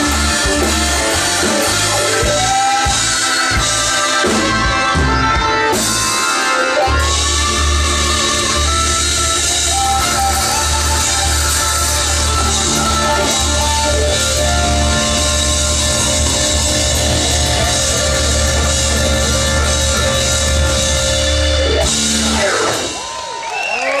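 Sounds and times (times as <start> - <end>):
blues band playing: 0.0 - 24.0
crowd noise: 0.0 - 24.0.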